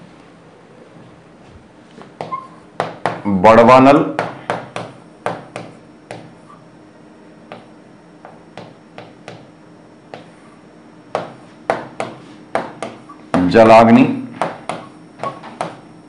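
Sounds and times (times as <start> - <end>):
faint steady hum: 0.0 - 16.0
pen tapping on a writing board: 4.2 - 6.3, 7.5 - 9.5, 10.1 - 10.3, 11.1 - 13.0.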